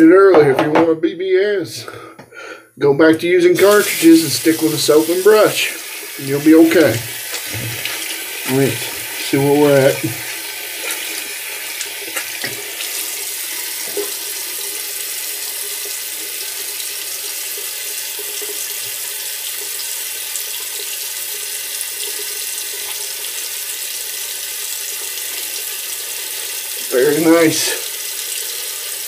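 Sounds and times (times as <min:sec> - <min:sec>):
tap water running into sink: 0:03.6 - 0:29.0.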